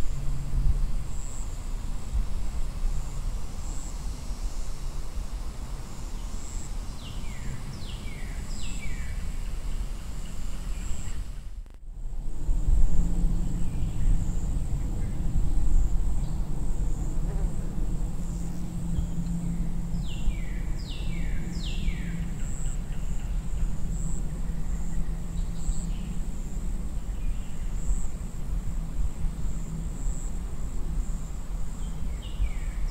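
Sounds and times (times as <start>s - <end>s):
high insect trill: 0.0s - 32.9s
low rumble: 11.6s - 32.6s.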